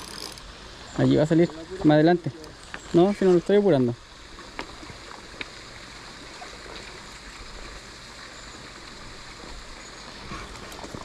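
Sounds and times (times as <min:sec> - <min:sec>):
river water running: 0:00.0 - 0:11.0.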